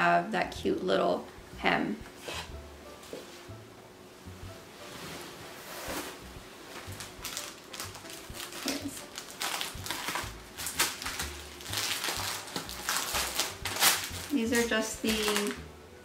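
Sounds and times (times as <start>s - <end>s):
plastic packaging crinkling: 6.8s - 15.7s.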